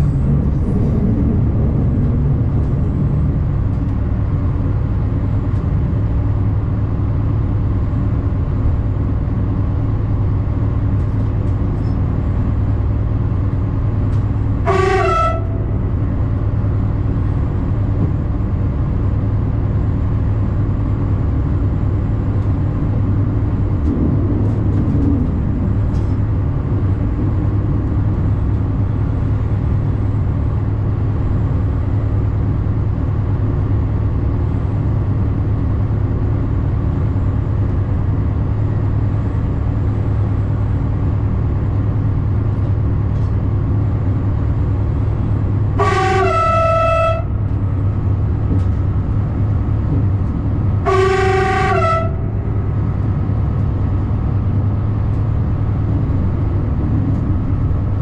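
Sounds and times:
train engine and rail drone: 0:00.0 - 0:58.0
train horn rising in pitch: 0:14.6 - 0:16.0, 0:45.7 - 0:47.7, 0:50.8 - 0:52.8.

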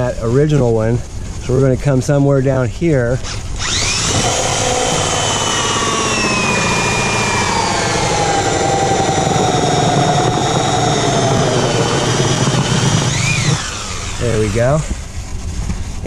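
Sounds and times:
hole saw grinding plastic: 0:03.2 - 0:15.0
cordless drill motor whine: 0:03.2 - 0:15.1.

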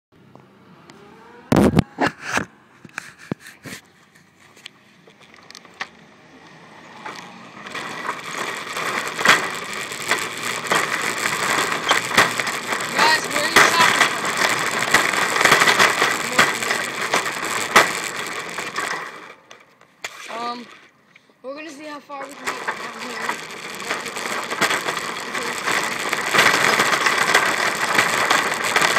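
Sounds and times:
shopping cart rattling on concrete: 0:05.4 - 0:20.8, 0:21.5 - 0:28.9.

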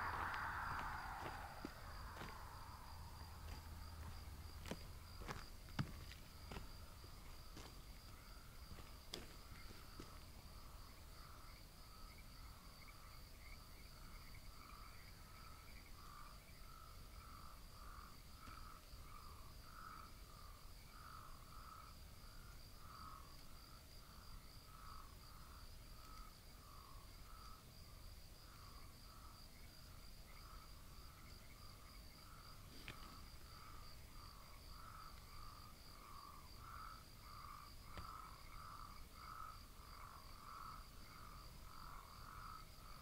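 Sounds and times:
low pulsing call: 0:00.0 - 0:04.4
crickets trilling: 0:00.0 - 0:43.0.

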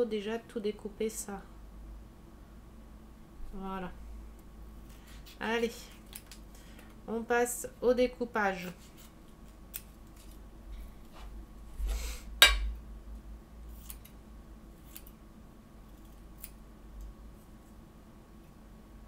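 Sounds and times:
scissors snipping paper: 0:13.7 - 0:14.2, 0:14.8 - 0:15.2.

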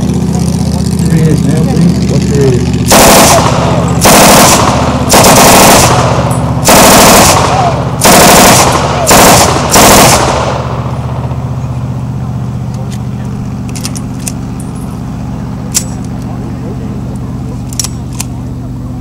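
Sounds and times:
machine gun bursts: 0:02.9 - 0:10.4.

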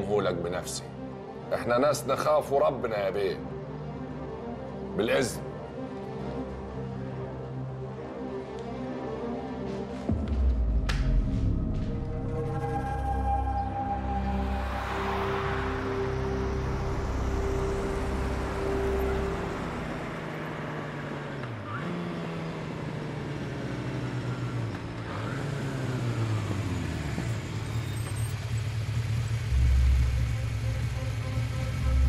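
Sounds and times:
motorcycle engine revving: 0:14.5 - 0:32.0.

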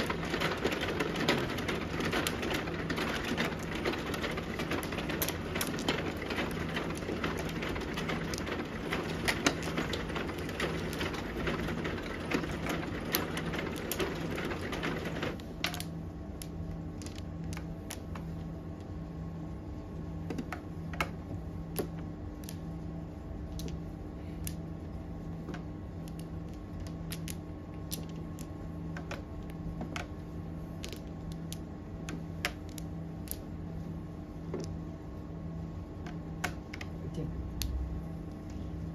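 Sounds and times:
mahjong tiles clattering: 0:00.0 - 0:18.2, 0:30.8 - 0:33.4
steady low hum: 0:00.0 - 0:38.9.

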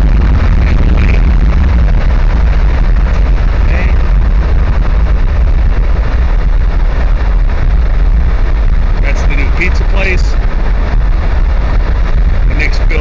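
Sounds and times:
road noise: 0:00.0 - 0:13.0
wind buffeting microphone: 0:00.0 - 0:13.0.

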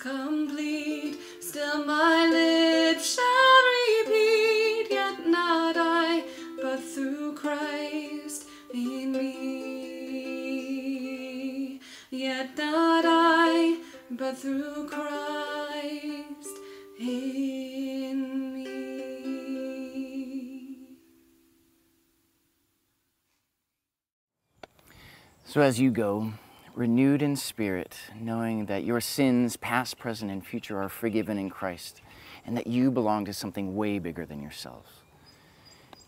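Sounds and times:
person singing with vibrato: 0:00.0 - 0:21.2
ukulele chords: 0:00.0 - 0:21.5.

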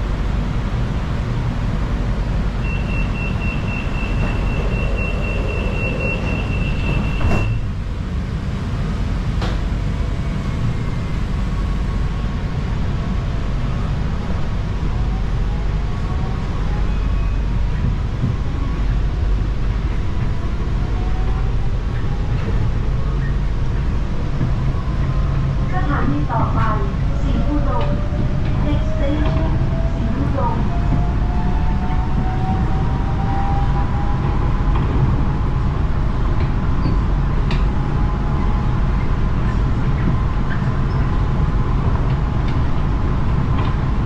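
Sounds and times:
steady train rumble: 0:00.0 - 0:44.0
train doors shutting with a knock: 0:02.7 - 0:07.8, 0:09.3 - 0:09.8.

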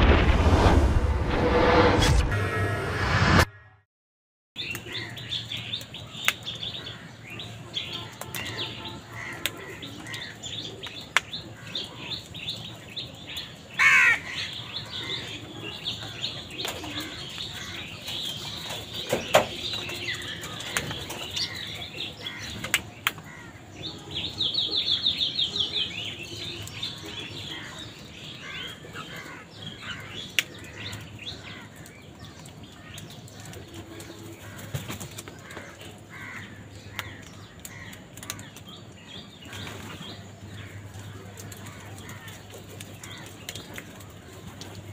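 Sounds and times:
small birds chirping: 0:04.6 - 0:44.9
crows cawing: 0:06.8 - 0:07.3, 0:08.0 - 0:10.5, 0:13.8 - 0:18.0, 0:20.1 - 0:23.8, 0:27.4 - 0:33.5, 0:34.3 - 0:38.7, 0:40.5 - 0:44.4.

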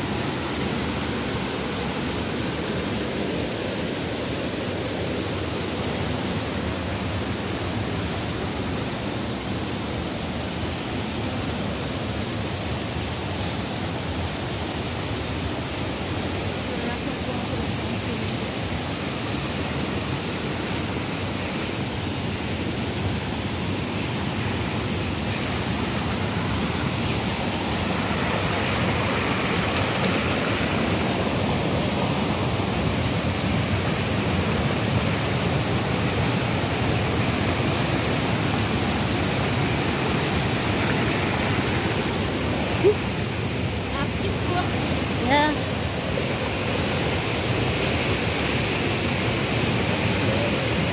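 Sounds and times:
river rushing over rocks: 0:00.0 - 0:50.9.

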